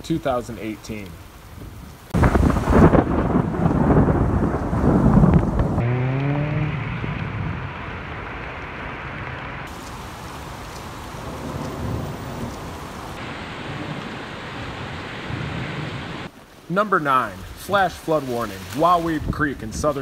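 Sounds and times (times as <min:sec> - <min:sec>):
heavy rain and floodwater hiss: 0:00.0 - 0:20.0
low rumble: 0:02.2 - 0:16.1.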